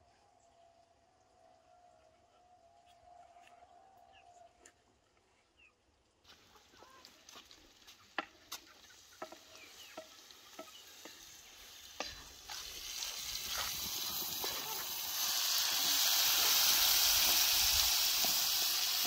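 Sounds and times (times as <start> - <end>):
frying sizzle: 7.0 - 19.0.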